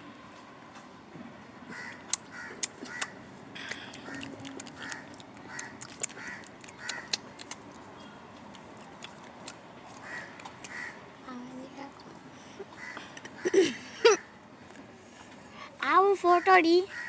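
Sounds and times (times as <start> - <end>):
sharp clicks: 2.1 - 7.8
calf sucking and smacking: 2.2 - 10.8.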